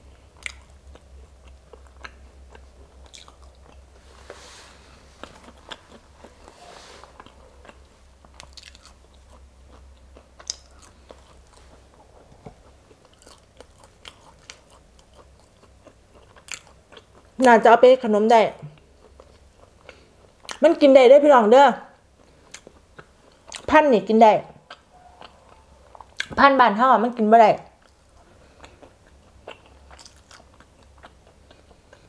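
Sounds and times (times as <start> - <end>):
person chewing beans: 0.0 - 17.5, 18.7 - 20.6, 22.0 - 23.7, 24.6 - 26.4, 27.8 - 32.0.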